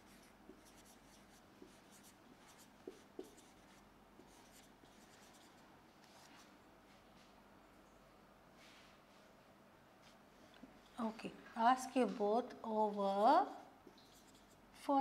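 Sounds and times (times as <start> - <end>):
faint marker writing on whiteboard: 0.0 - 7.0, 10.0 - 11.0, 12.0 - 15.0.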